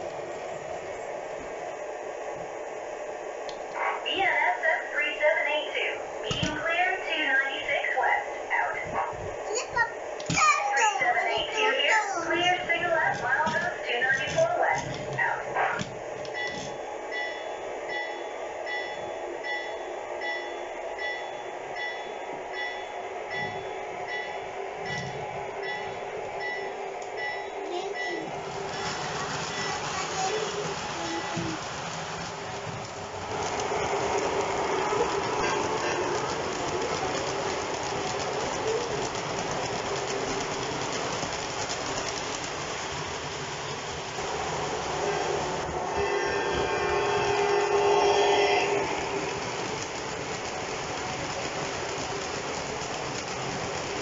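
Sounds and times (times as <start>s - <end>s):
model train running hum: 0.0s - 54.0s
wheels clicking over rail joints: 12.4s - 15.2s, 28.6s - 46.1s, 48.8s - 54.0s
model train bell ringing: 16.3s - 28.3s.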